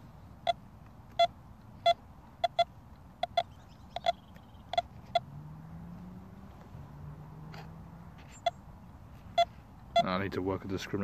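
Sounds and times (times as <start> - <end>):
metal detector beeps: 0.4 - 5.3, 9.3 - 10.2.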